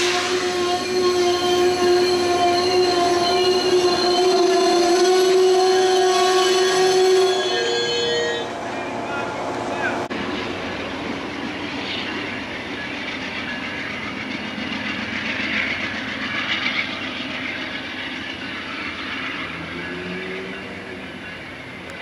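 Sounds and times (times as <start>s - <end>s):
train wheels running over rails: 9.8s - 22.0s.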